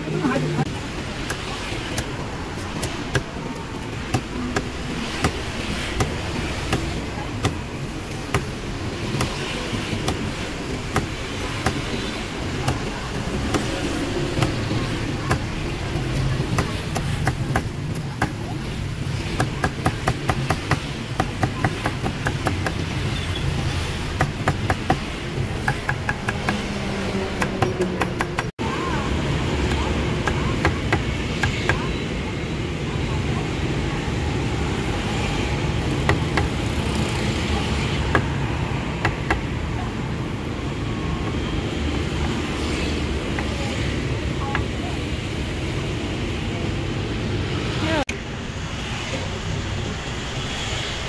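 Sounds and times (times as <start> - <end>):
street traffic hum: 0.0 - 51.0
cleaver chopping on wooden board: 19.4 - 22.8.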